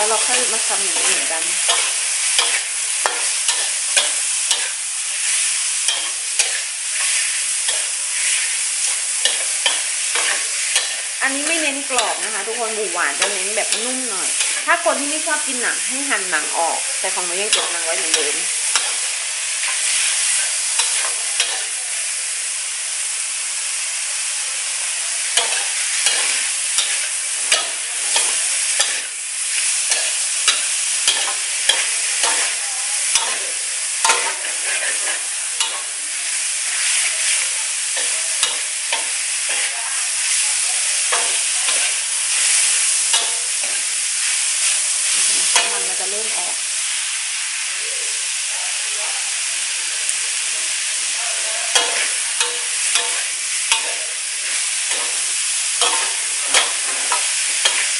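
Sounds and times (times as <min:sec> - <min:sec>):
metal ladle scraping a wok: 0:00.0 - 0:15.4, 0:17.1 - 0:21.8, 0:25.3 - 0:36.0, 0:51.7 - 0:57.9
meat sizzling in oil: 0:00.0 - 0:57.9.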